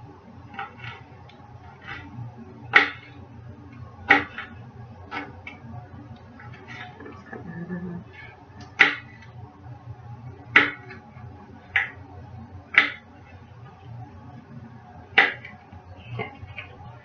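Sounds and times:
low steady hum: 0.0 - 17.0
knife chopping on a tray: 2.7 - 3.1, 4.1 - 4.5, 8.8 - 9.2, 10.5 - 11.0, 15.2 - 15.5.

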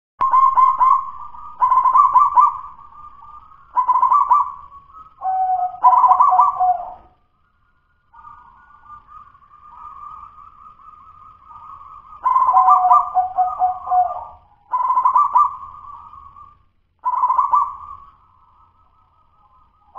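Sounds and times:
dove cooing: 0.2 - 7.2, 11.6 - 18.1.

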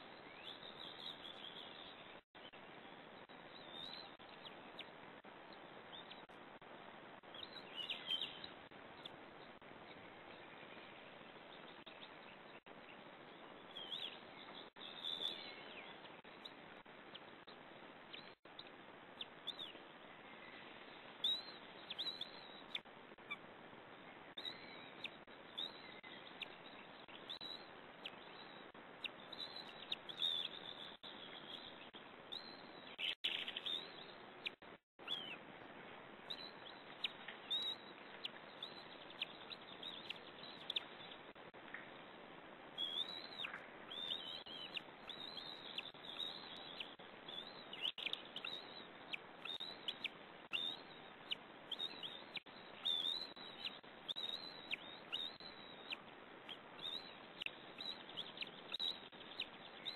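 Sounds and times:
steady background hiss: 0.0 - 59.9
high bird chirps: 42.8 - 59.9.

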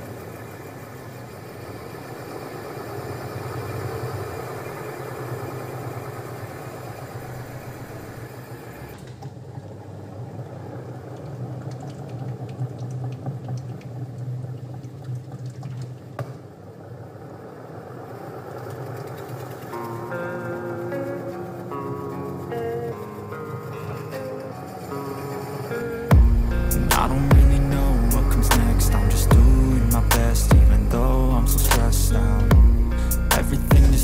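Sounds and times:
hiss: 0.0 - 9.0
washing machine spinning hum: 0.0 - 34.0.

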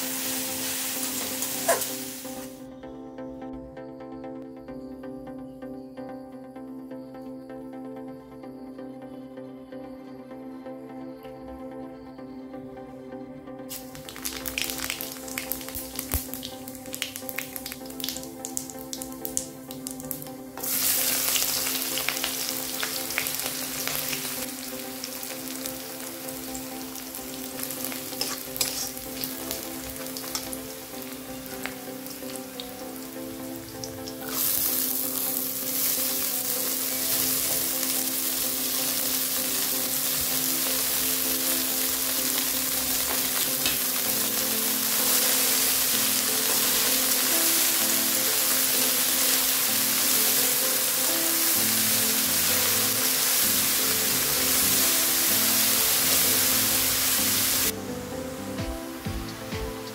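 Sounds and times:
onions sizzling in a pan: 0.0 - 2.6, 13.7 - 58.4
seeds crackling in hot oil: 0.0 - 2.6, 13.7 - 57.8
metal spatula stirring: 28.2 - 29.0.

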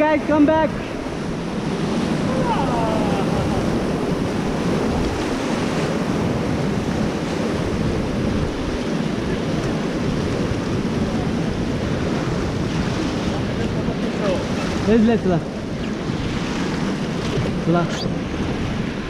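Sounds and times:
whitewater river rushing: 0.0 - 19.0
wind buffeting microphone: 0.0 - 19.0.

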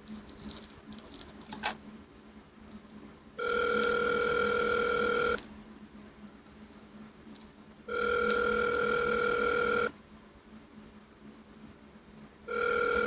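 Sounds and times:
telephone ring tone: 3.4 - 5.4, 7.9 - 9.9, 12.5 - 13.0.

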